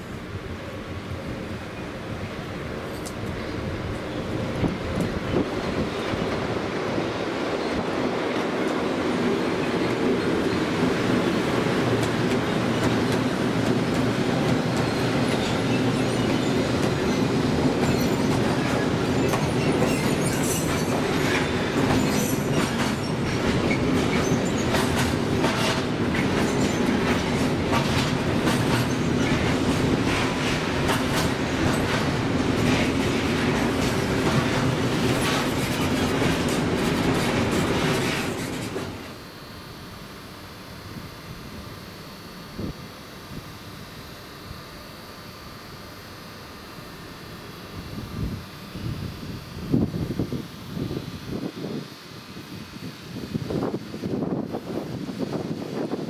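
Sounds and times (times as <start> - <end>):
train wheels rumbling on rail: 0.0 - 39.3, 47.5 - 56.0
wheels clacking over rail joints: 7.5 - 39.2.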